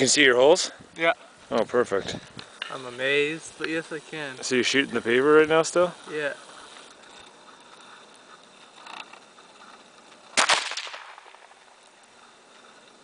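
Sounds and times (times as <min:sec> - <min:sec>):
rifle shot: 0:10.4 - 0:11.5.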